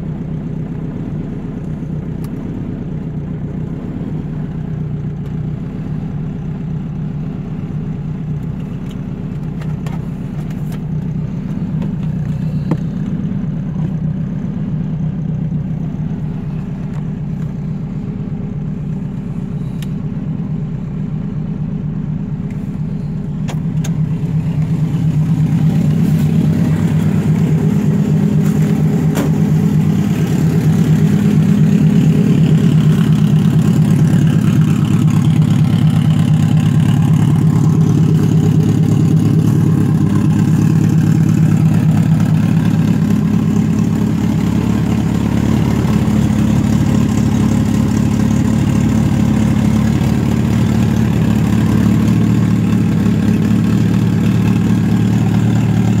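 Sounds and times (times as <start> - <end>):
car engine fast-idling: 0.0 - 56.0.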